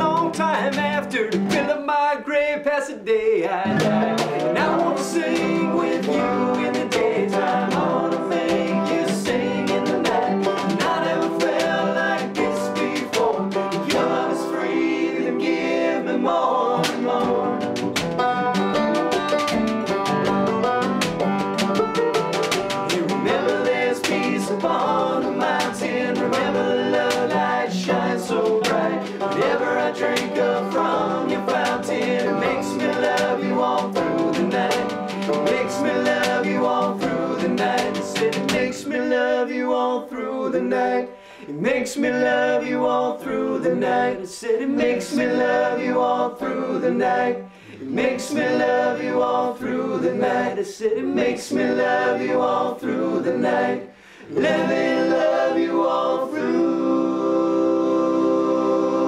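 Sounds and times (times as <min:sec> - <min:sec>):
hand drum: 0:00.0 - 0:01.8, 0:03.7 - 0:16.0, 0:16.6 - 0:38.9
picked banjo: 0:00.0 - 0:01.9, 0:03.6 - 0:59.0
acoustic guitar: 0:00.0 - 0:02.6, 0:03.5 - 0:39.6, 0:44.7 - 0:59.0
voices singing: 0:00.0 - 0:59.0.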